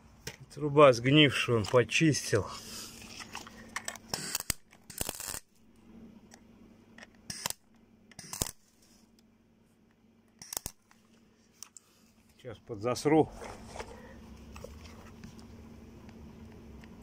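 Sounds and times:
welding arcs crackling: 4.2 - 5.5.

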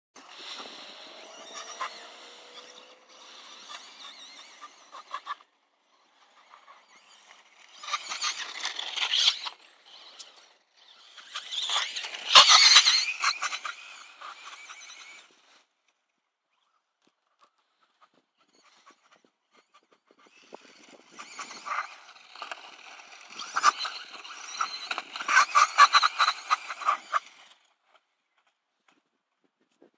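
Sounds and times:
electric motor whine: 0.2 - 5.4
rc car motor whining: 0.2 - 28.4
tyres on dirt and gravel: 0.2 - 29.9.

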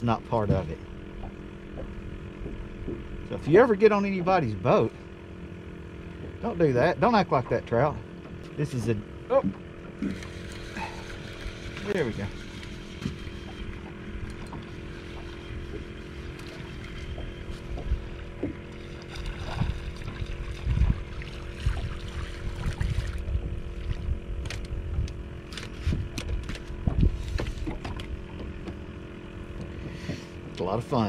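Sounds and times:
low rumble: 0.0 - 30.1
boat hum: 0.0 - 31.0
fish splashing: 9.8 - 24.4.

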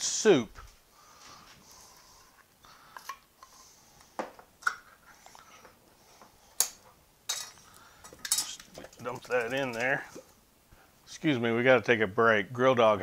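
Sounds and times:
metal can clinking on bowl: 8.2 - 10.3.

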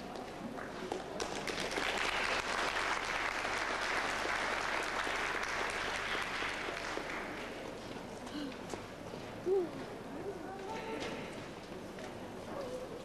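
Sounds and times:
audience applauding: 1.2 - 7.6.

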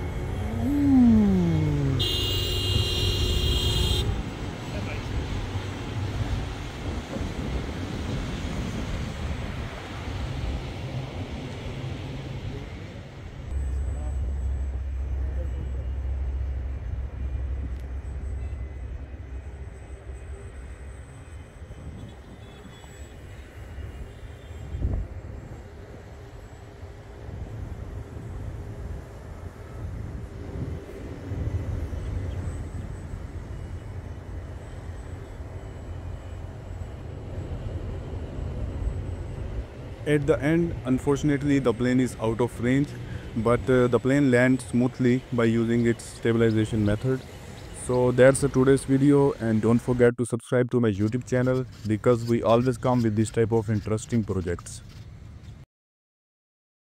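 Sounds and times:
faint high tone: 0.0 - 2.3
low outdoor rumble: 0.0 - 50.0
wind buffeting microphone: 4.0 - 10.8.

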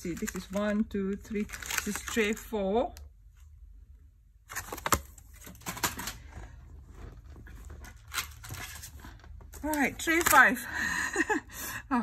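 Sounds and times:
pencils rattling in plastic trays: 0.0 - 2.6, 4.6 - 6.3.

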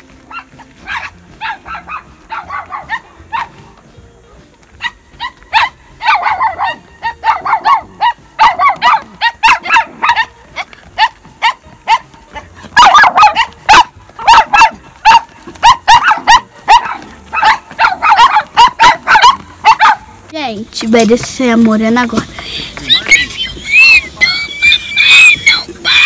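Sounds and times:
dog barking: 0.3 - 3.6, 4.8 - 20.1.

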